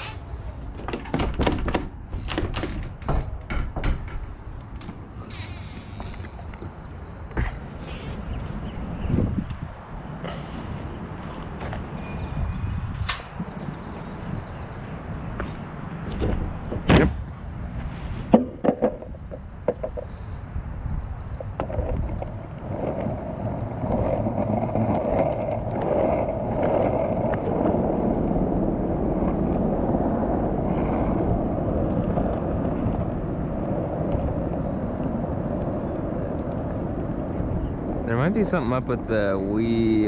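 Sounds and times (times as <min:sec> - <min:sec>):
skateboard rolling on pavement: 0:00.0 - 0:40.0
skateboard wheel clacks: 0:18.3 - 0:20.7, 0:21.4 - 0:38.0.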